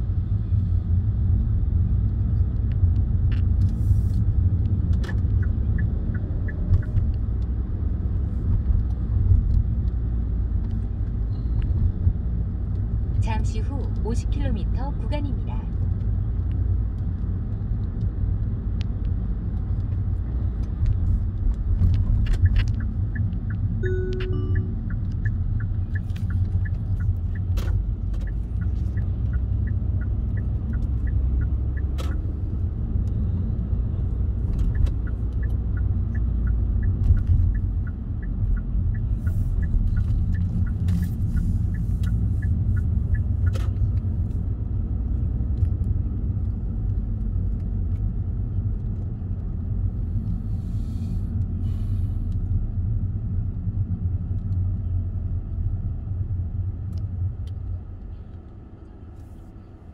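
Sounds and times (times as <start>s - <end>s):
car engine and tyre rumble: 0.0s - 59.9s
turn signal ticking: 1.3s - 50.4s
short beep: 23.8s - 24.9s.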